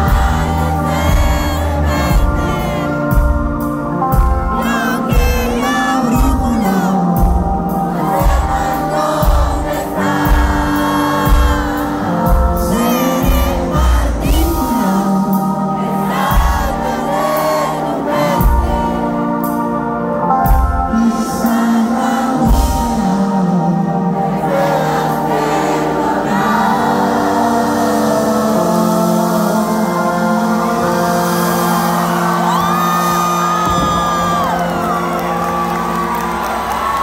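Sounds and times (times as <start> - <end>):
live band and singer: 0.0 - 37.0
heavy drum and bass hits: 33.6 - 34.8.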